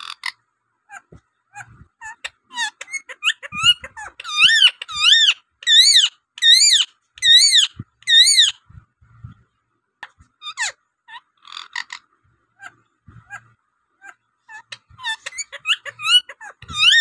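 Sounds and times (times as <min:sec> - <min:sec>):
parakeet calling: 0:00.0 - 0:08.6, 0:12.6 - 0:17.0.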